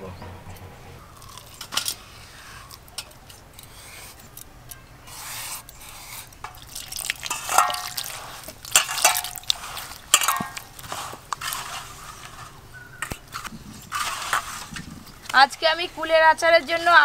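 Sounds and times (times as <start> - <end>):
splashing and squelching: 6.4 - 12.3
water pouring into steel bowl: 6.5 - 10.9
hand kneading in water: 6.6 - 11.8.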